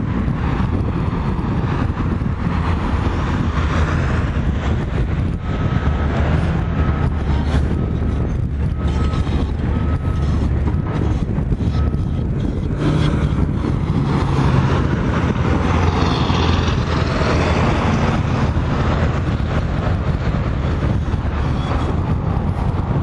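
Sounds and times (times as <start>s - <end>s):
excavator diesel engine running: 0.0s - 23.0s
road traffic: 0.0s - 23.0s
vehicle passing close by: 12.8s - 20.8s.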